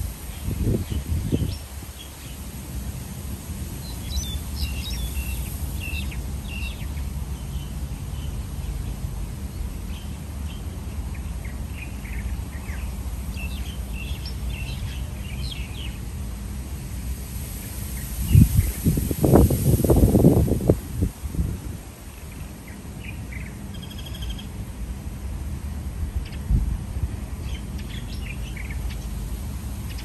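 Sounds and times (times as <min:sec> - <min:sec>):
small birds chirping: 0:03.8 - 0:16.0, 0:22.1 - 0:24.6, 0:27.3 - 0:30.0.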